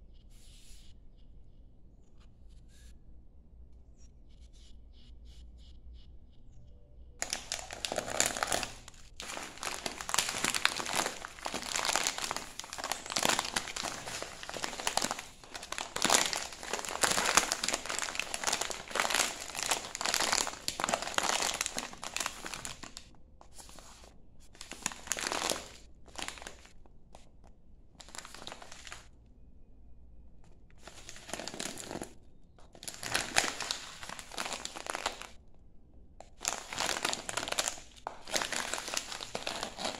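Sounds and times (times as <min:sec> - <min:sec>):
plastic pouch crinkling: 0:07.2 - 0:27.3, 0:28.0 - 0:29.1, 0:30.7 - 0:35.4, 0:36.2 - 0:39.9.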